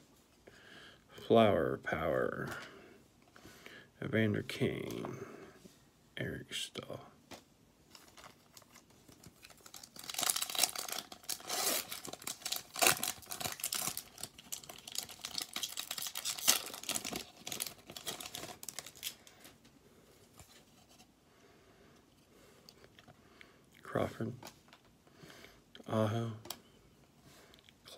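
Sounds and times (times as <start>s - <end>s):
soft handling of cards: 2.2s - 3.5s, 7.1s - 21.2s, 23.8s - 25.0s
foil wrapper tearing and crinkling: 8.0s - 19.3s.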